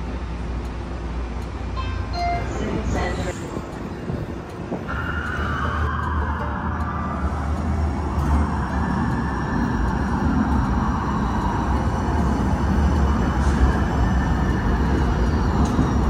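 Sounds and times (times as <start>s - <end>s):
wheels rumbling on rails: 0.0s - 16.0s.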